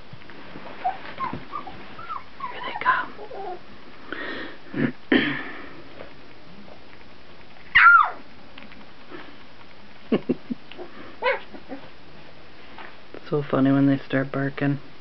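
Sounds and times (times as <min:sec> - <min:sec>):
puppy high bark: 0:07.7 - 0:08.2, 0:11.2 - 0:11.8.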